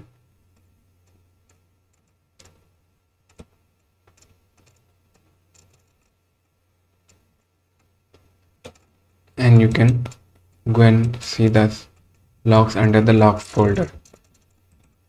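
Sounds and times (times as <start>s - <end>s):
faint low hum: 0.0s - 15.0s
computer mouse clicks: 0.5s - 6.2s, 7.0s - 9.0s.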